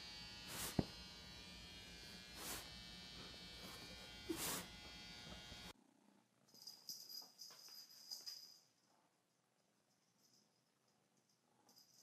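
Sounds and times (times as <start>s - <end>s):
faint electrical buzz: 0.0s - 5.8s
short hissing noises: 4.3s - 4.7s.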